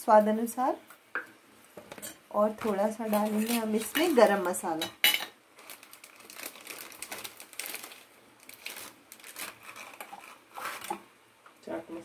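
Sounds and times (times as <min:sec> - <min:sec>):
plastic packet crinkling: 0:05.6 - 0:11.0.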